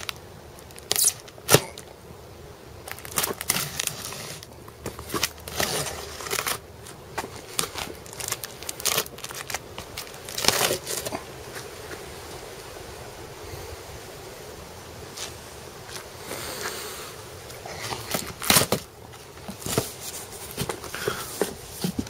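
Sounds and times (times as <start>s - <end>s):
knife slicing packing tape: 0.8s - 1.8s.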